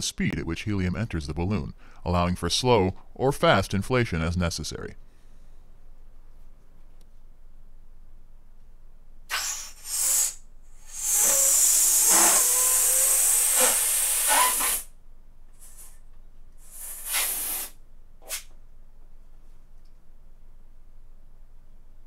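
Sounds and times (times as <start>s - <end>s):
helium hissing into balloon: 9.3s - 14.9s, 15.6s - 16.0s, 16.6s - 18.5s.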